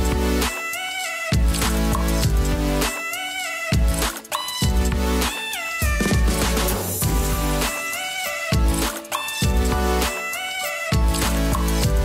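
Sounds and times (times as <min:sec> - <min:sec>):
background music with sliding lead: 0:00.0 - 0:12.0.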